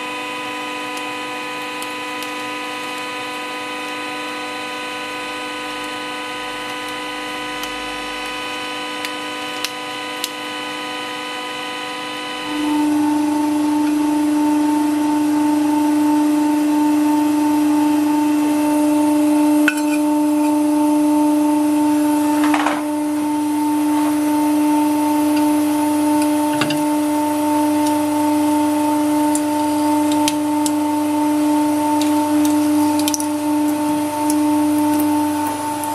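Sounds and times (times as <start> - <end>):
pump motor whining hum: 0.0 - 35.9.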